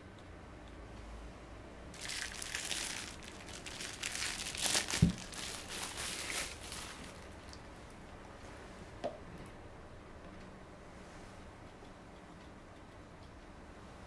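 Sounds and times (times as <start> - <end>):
cling film crinkling: 2.0 - 7.7.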